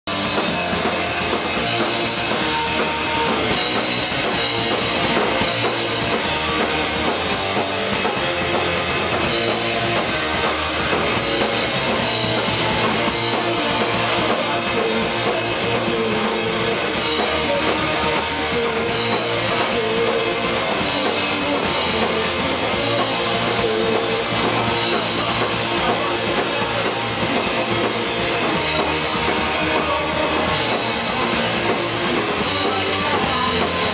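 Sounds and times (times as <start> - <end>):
bass guitar: 0.0 - 33.9
distorted electric guitars: 0.0 - 33.9
driving drum kit: 0.0 - 33.9
person singing into microphone: 13.3 - 27.9.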